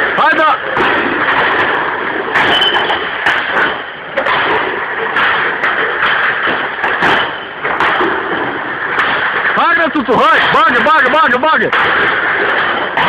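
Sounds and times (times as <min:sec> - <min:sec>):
bottles clinking in crates: 0:00.0 - 0:13.0.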